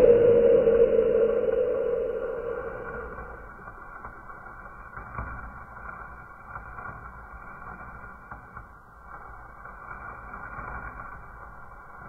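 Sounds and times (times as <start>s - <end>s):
sparkler fizzing: 4.4s - 12.0s
faint crackles: 4.9s - 12.0s.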